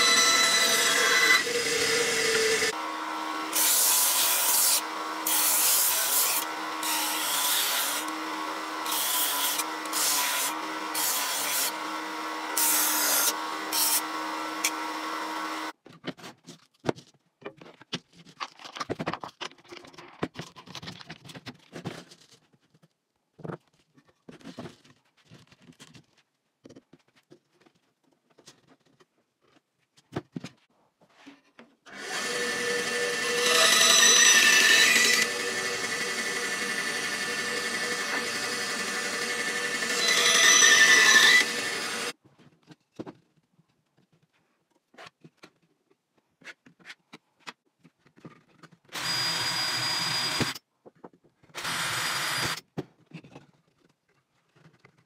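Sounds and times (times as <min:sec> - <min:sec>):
scroll saw cutting plywood: 0:00.0 - 0:15.7, 0:31.9 - 0:42.2, 0:48.9 - 0:50.6, 0:51.6 - 0:52.6
belt sander running: 0:31.9 - 0:42.1.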